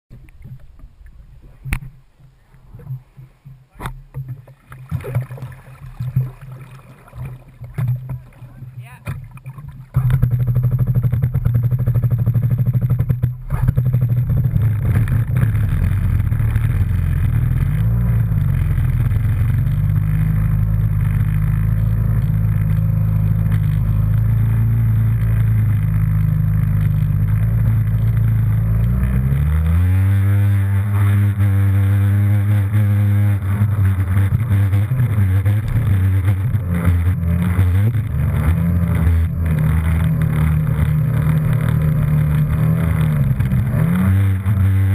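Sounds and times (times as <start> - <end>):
water splashing: 0.1 - 12.1
jet ski engine revving: 2.7 - 44.9.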